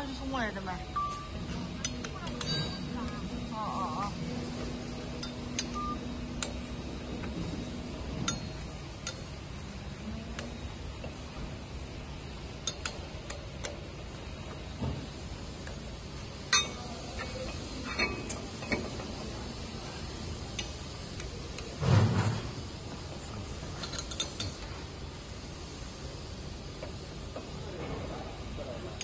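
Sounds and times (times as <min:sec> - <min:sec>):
low background hum: 0:00.0 - 0:29.0
metal parts clinking and knocking: 0:23.8 - 0:24.6.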